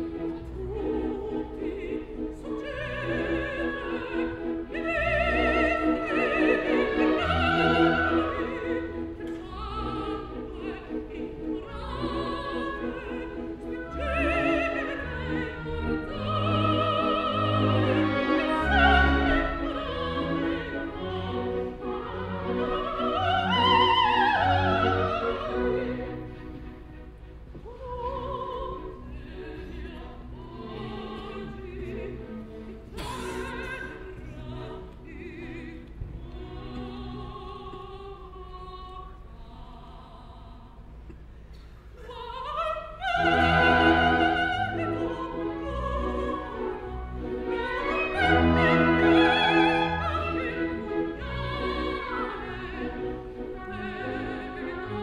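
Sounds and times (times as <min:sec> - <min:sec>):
operatic soprano singing: 0:00.0 - 0:41.2, 0:41.8 - 0:55.0
orchestra playing: 0:43.0 - 0:55.0.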